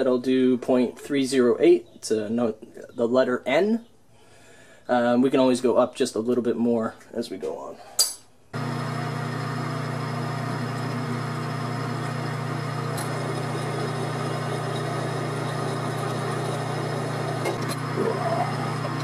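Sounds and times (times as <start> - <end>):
drill boring into steel: 8.6 - 19.0
metal lathe humming: 8.6 - 19.0.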